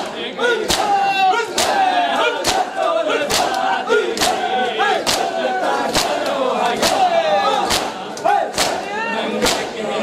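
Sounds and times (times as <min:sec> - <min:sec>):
crowd beating chests: 0:00.0 - 0:10.0
crowd chanting: 0:00.0 - 0:10.0.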